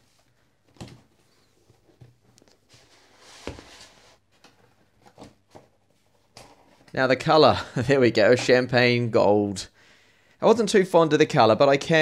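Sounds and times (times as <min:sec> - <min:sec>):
cardboard scraping and rustling: 0:01.7 - 0:04.2.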